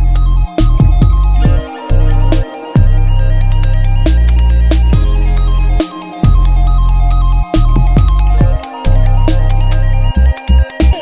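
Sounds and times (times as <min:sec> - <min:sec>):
wobbling bass: 0:00.0 - 0:11.0
electronic dance music: 0:00.6 - 0:11.0
synth melody: 0:00.8 - 0:11.0.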